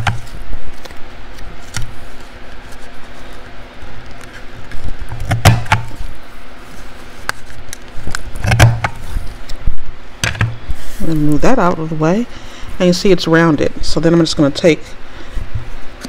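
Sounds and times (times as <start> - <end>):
paper handling: 0.0 - 9.5.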